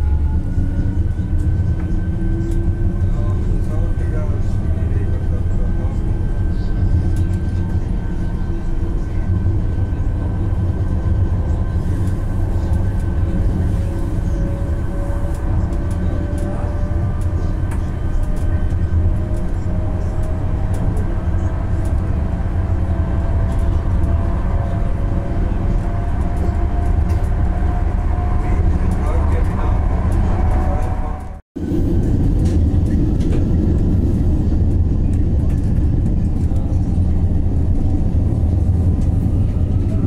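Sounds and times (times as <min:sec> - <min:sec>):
wheels rumbling on rail: 0:00.0 - 0:40.0.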